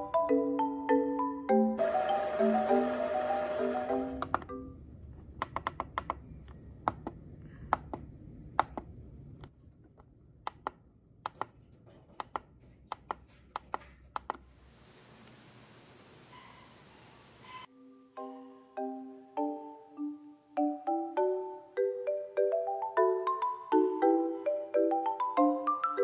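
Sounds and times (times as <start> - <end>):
background music: 0.0 - 4.8, 17.7 - 26.0
faint hiss: 14.5 - 17.7.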